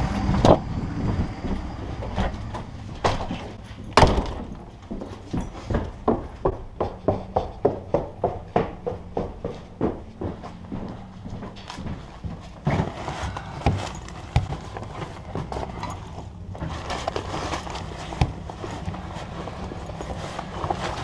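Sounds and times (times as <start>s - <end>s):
low hum: 0.0s - 6.9s
fabric rustling: 11.7s - 21.0s.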